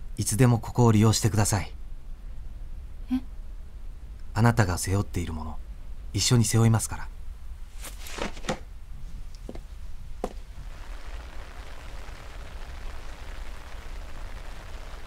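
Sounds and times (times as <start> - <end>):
soft knocks: 9.4 - 10.4
steady rain: 10.2 - 15.0.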